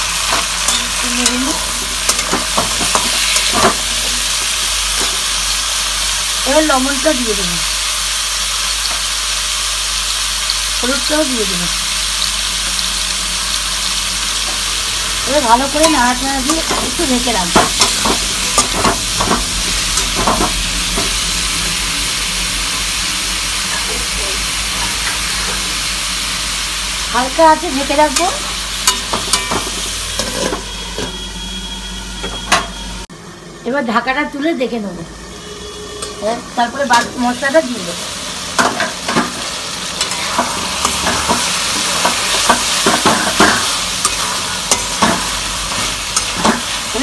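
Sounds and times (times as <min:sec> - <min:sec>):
vegetables sizzling in hot oil: 0:00.0 - 0:31.3, 0:33.7 - 0:47.0
metal spatula scraping pan: 0:28.8 - 0:31.3, 0:38.6 - 0:47.0.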